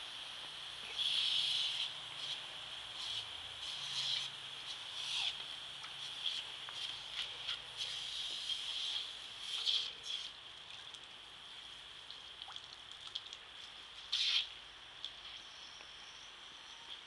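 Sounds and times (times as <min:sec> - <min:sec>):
water jet hissing: 0:00.0 - 0:10.5.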